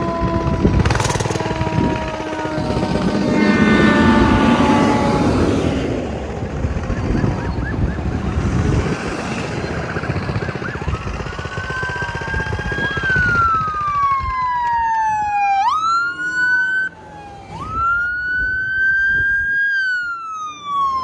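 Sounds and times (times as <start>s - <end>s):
loud horn blast: 0.0s - 6.3s
quick rising siren chirps: 0.0s - 6.4s, 10.4s - 21.0s
emergency vehicle siren: 0.0s - 21.0s
truck engine: 0.0s - 21.0s.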